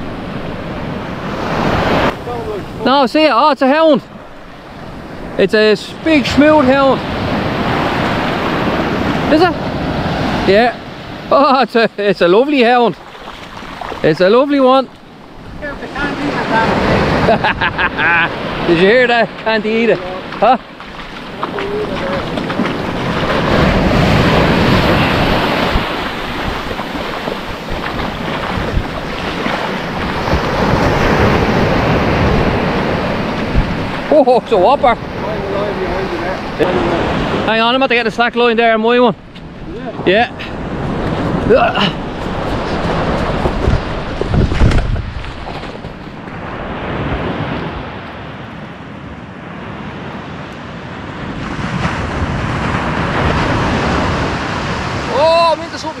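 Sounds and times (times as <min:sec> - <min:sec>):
surf breaking on sandy beach: 0:00.0 - 0:56.0
wind buffeting microphone: 0:00.0 - 0:56.0.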